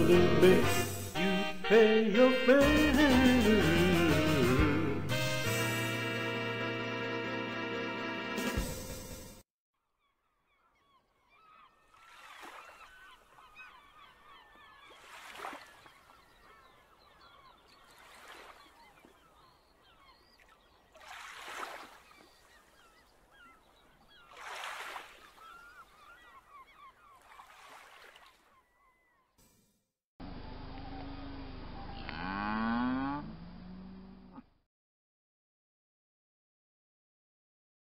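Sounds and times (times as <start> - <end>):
birds honking and chattering: 10.0 - 21.1, 22.0 - 27.8.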